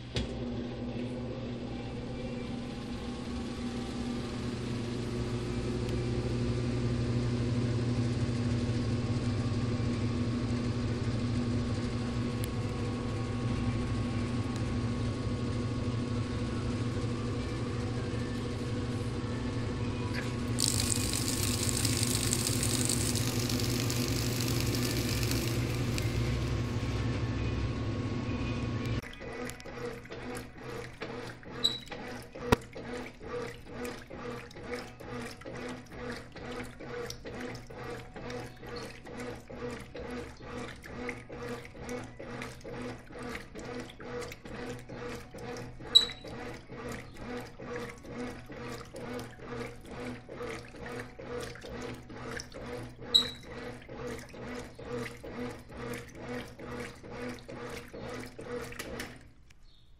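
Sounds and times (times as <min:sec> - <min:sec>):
washing machine motor hum: 0:00.0 - 0:59.9
water sloshing in washing machine: 0:16.3 - 0:27.1, 0:28.9 - 0:59.8.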